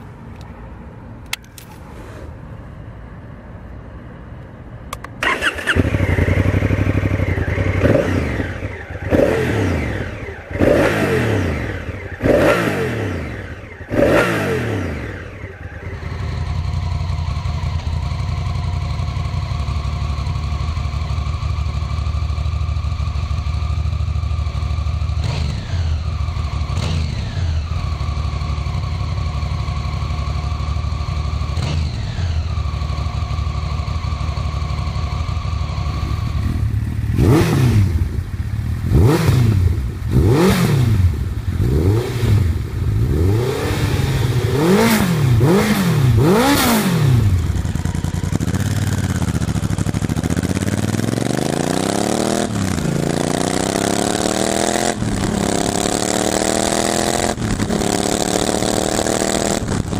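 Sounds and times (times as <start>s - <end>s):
engine throttle blips: 4.9s - 19.0s
motorcycle engine starting: 4.9s - 59.9s
engine idling: 15.0s - 41.7s, 44.1s - 51.4s.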